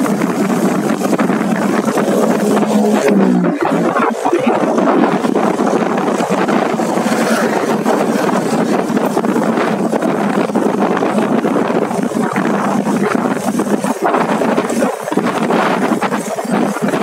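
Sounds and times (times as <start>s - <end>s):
motorcycle engine: 0.0s - 10.8s
road noise: 0.0s - 17.0s
wind buffeting microphone: 0.0s - 17.0s.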